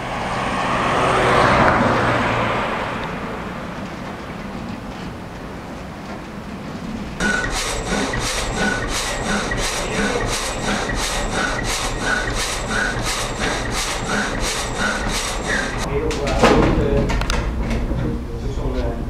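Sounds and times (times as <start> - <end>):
frame saw rasping through log: 7.2 - 15.9.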